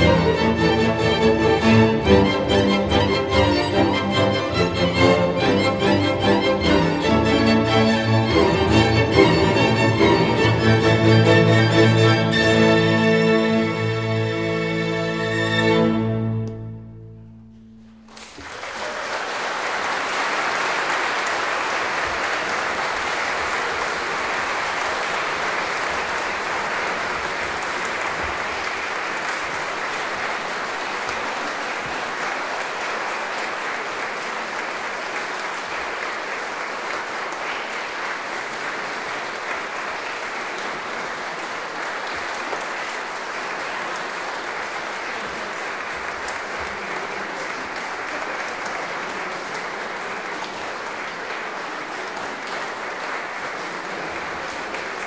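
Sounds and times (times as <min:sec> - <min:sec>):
audience applauding: 0:00.0 - 0:13.9, 0:17.8 - 0:55.0
string orchestra chord: 0:00.0 - 0:18.2.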